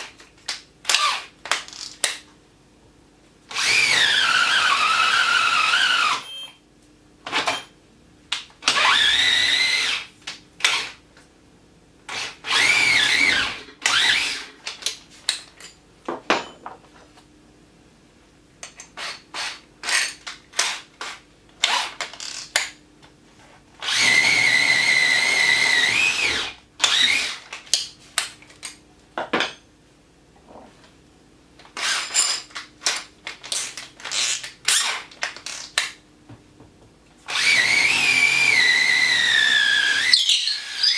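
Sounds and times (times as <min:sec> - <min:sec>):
cordless drill motor whine: 0:03.5 - 0:06.5, 0:08.7 - 0:10.1, 0:12.1 - 0:14.5, 0:23.8 - 0:27.4, 0:37.3 - 0:40.9.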